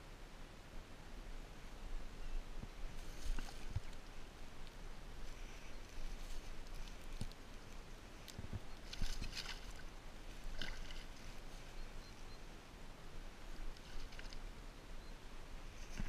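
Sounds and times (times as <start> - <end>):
fish splashing in shallow water: 8.8 - 11.8, 13.6 - 14.7.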